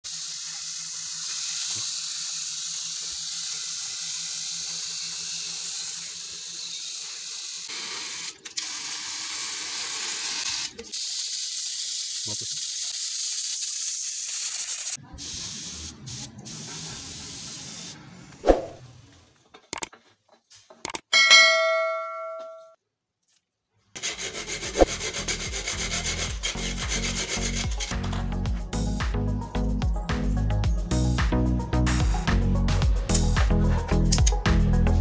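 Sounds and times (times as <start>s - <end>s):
spray bottle hissing: 0.1s - 18.8s.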